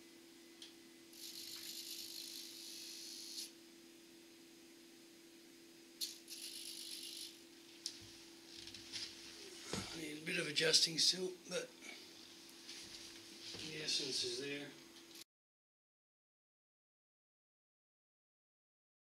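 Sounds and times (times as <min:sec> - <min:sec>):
low steady hum: 0:00.0 - 0:15.2.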